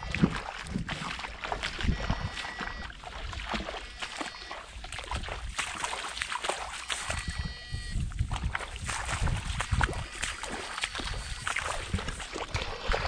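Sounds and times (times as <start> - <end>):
footsteps sloshing through water: 0.0 - 13.0.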